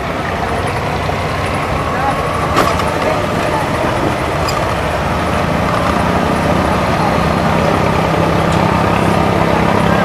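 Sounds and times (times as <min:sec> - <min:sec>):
boat diesel engine droning: 0:00.0 - 0:10.0.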